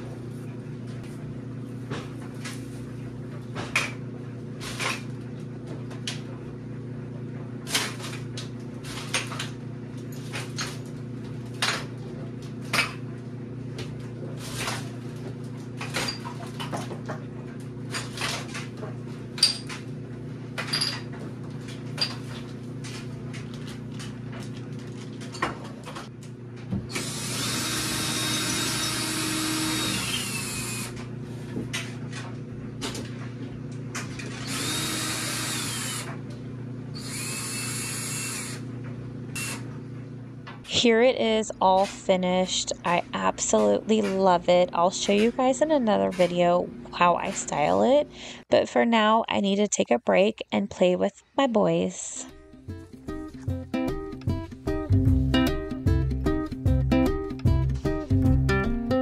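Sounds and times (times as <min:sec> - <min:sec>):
steady low hum: 0:00.0 - 0:53.7
cordless drill whirring: 0:26.9 - 0:31.0, 0:34.3 - 0:36.1, 0:37.0 - 0:38.6, 0:39.4 - 0:39.6.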